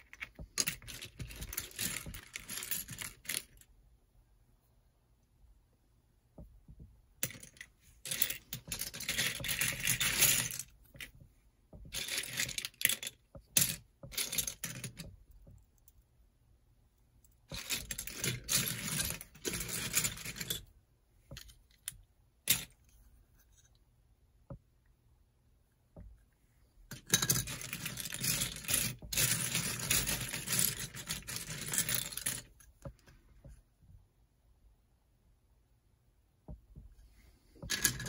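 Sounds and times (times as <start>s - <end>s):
plastic toy bricks clattering: 0.0s - 3.6s, 7.2s - 11.1s, 11.8s - 15.1s, 17.5s - 20.7s, 26.9s - 32.6s, 37.6s - 38.0s.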